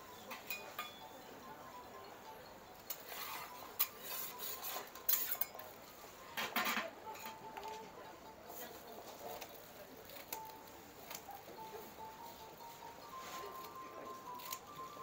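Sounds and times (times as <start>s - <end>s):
metal utensils and pans clattering: 0.2s - 1.0s, 3.8s - 5.6s, 6.4s - 7.4s.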